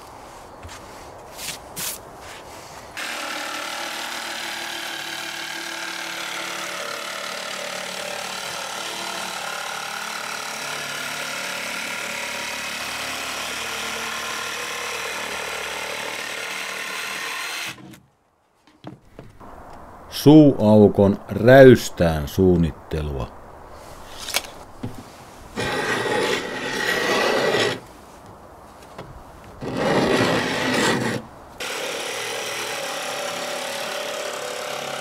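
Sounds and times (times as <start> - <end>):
jigsaw cutting plywood: 3.0 - 18.0, 25.6 - 27.8, 29.6 - 35.0.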